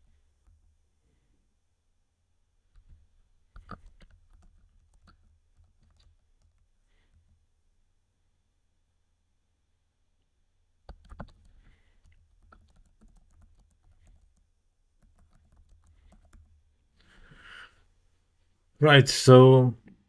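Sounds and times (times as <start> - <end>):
quiet keyboard typing: 2.7 - 7.5, 10.8 - 16.8.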